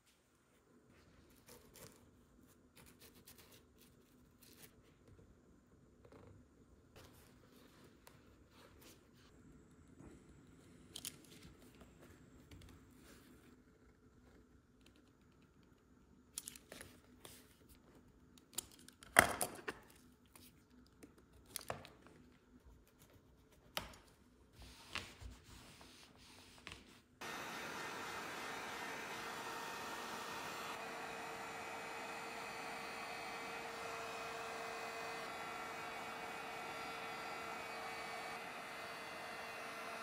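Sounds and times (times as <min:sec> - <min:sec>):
steamer hissing: 0:27.2 - 0:40.0.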